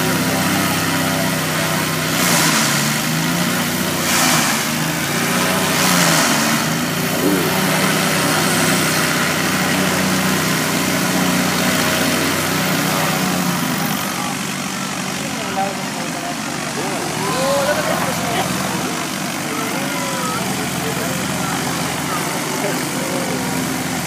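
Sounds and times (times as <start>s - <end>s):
aircraft piston engines idling: 0.0s - 24.0s
rushing noise: 4.0s - 10.6s.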